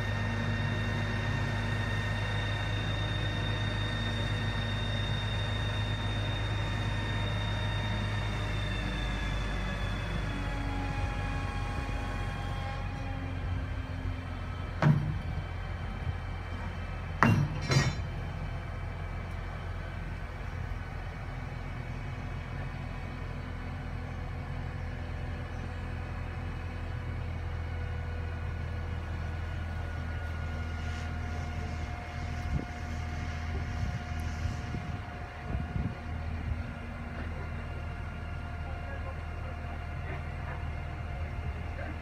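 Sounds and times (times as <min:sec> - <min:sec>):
diesel engine droning: 0:00.0 - 0:42.0.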